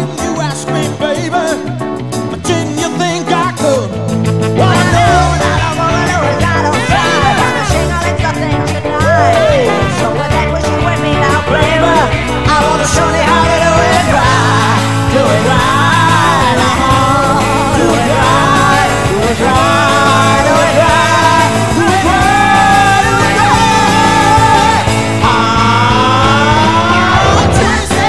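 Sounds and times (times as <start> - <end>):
rock band playing: 0.0 - 28.0
person singing long notes: 11.3 - 28.0.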